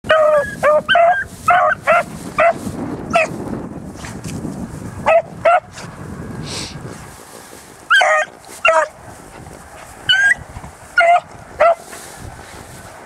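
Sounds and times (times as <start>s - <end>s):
dogs baying and barking: 0.1s - 3.4s, 5.0s - 5.9s, 7.8s - 12.0s.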